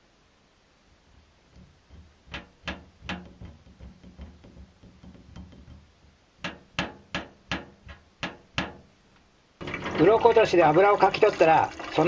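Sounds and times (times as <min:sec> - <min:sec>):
knocks on steel sink: 0:01.6 - 0:08.8.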